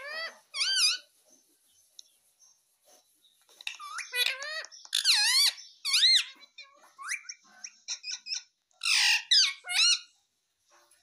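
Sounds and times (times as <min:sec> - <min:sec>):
parakeet chattering and squawking: 0:00.0 - 0:01.2, 0:03.5 - 0:10.2.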